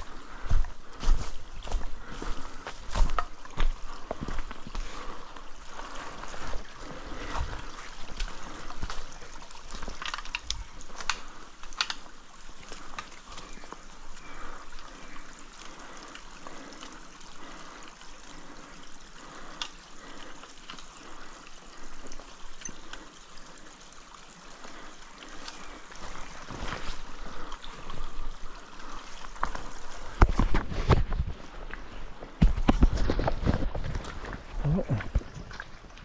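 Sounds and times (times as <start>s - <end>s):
stream trickling: 0.0s - 36.0s
low thumps and rustles: 29.3s - 35.7s.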